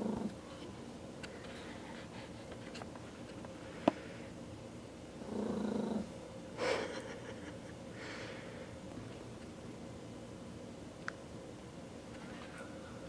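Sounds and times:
puppy growling: 0.0s - 0.4s, 5.2s - 6.2s.

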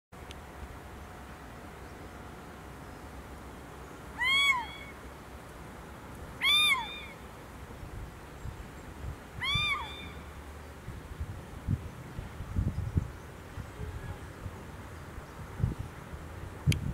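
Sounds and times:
owl calling: 4.2s - 5.0s, 6.4s - 7.2s, 9.4s - 10.4s.

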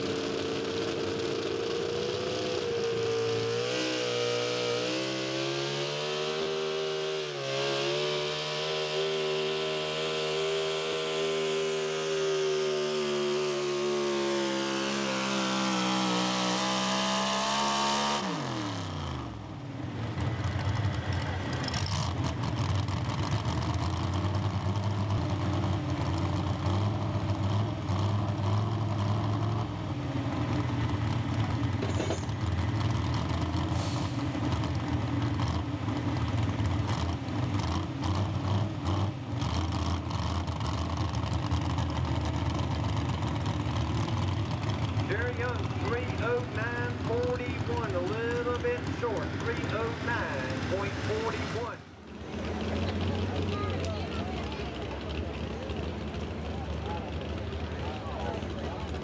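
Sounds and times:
truck engine at full throttle: 0.0s - 59.0s
engine idling low rumble: 19.2s - 38.0s, 38.6s - 59.0s.

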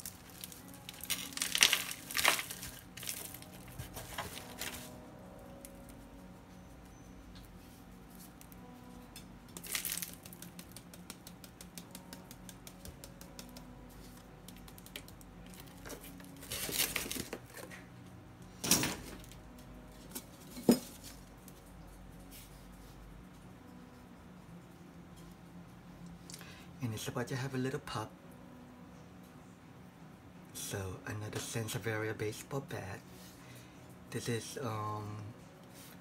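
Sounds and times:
plastic bag rustling: 0.0s - 5.0s, 9.6s - 10.3s.

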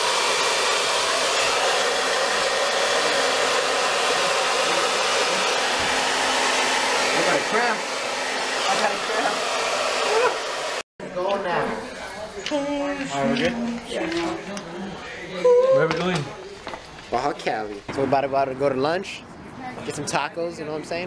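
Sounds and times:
hair dryer blowing: 0.0s - 10.8s.

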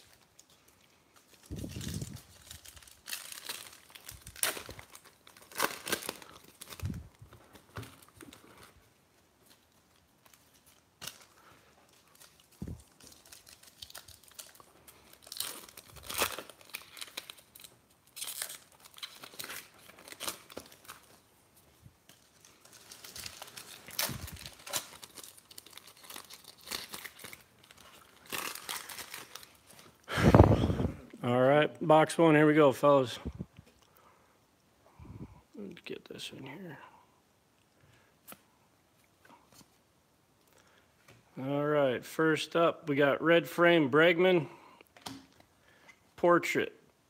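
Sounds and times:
card pack wrapper crinkling and tearing: 0.0s - 21.4s, 22.0s - 30.6s.

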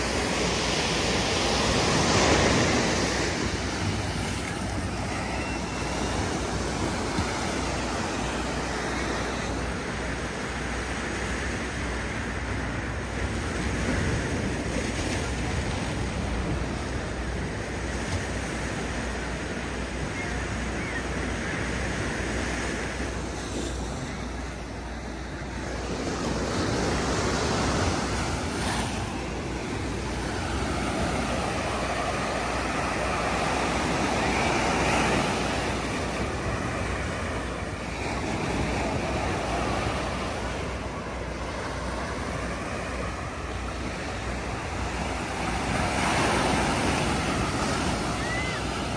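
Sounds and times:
waves breaking on rocks: 24.8s - 48.9s.

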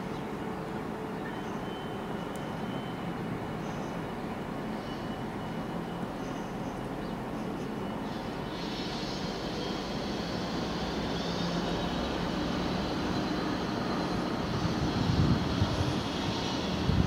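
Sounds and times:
diesel locomotive engine drone: 0.0s - 17.0s.

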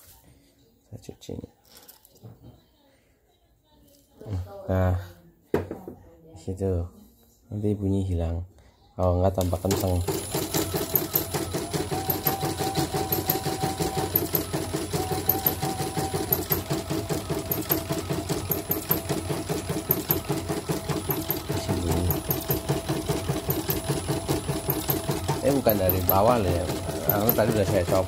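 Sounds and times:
embroidery machine clattering: 9.5s - 28.0s.

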